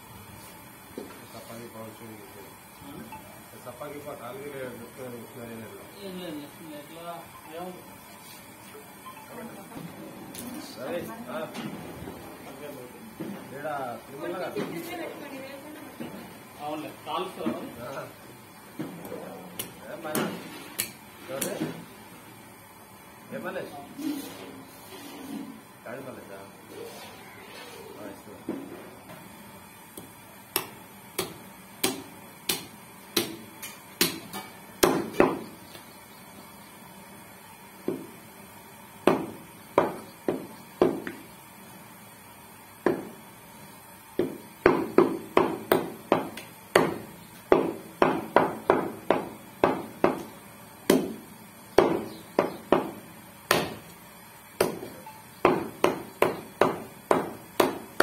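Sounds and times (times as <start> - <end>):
meat cleaver chopping on wood: 30.0 - 35.5, 39.1 - 41.2, 42.8 - 43.2, 44.2 - 53.9, 54.6 - 58.0.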